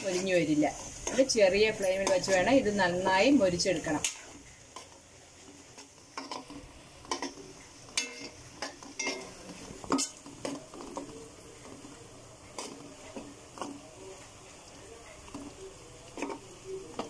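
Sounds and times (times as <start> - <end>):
faint sizzle of frying: 0.0 - 17.0
spoon scraping and knocking on pot: 6.1 - 11.2.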